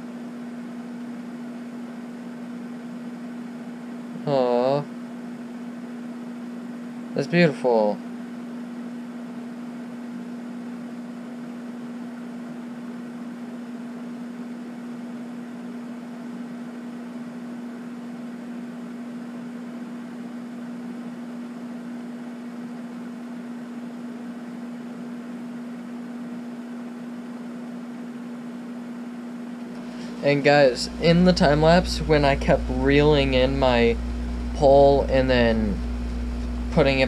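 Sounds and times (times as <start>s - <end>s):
constant even hiss: 0.0s - 8.1s, 29.6s - 37.0s
steady low hum: 0.0s - 37.0s.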